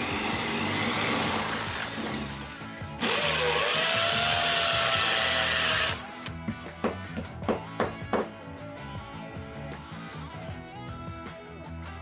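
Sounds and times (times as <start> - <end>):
drill boring into concrete: 0.0 - 6.1
background music: 0.0 - 12.0.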